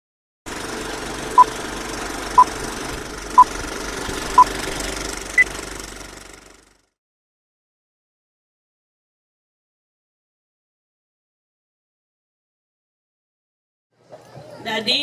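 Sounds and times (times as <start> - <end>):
film projector running: 0.5 - 6.8.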